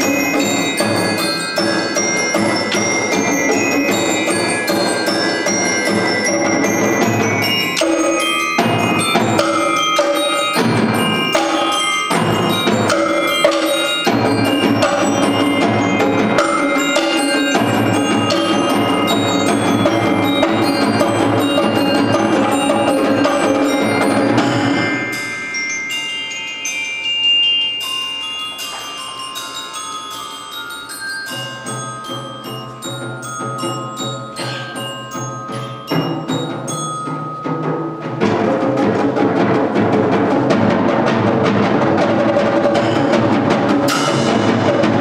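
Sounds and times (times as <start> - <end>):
mallet keyboard notes: 0.0 - 45.0
percussion ensemble playing: 0.0 - 45.0.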